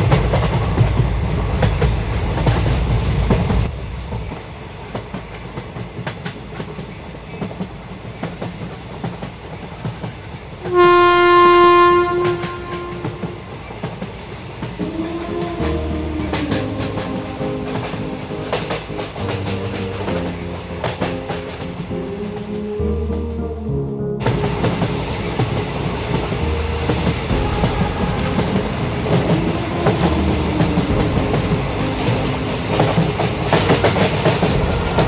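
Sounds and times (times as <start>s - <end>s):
train rumble: 0.0s - 35.0s
train horn: 10.6s - 13.8s, 24.2s - 35.0s
wheel clicks on rail joints: 12.1s - 22.6s, 24.2s - 35.0s.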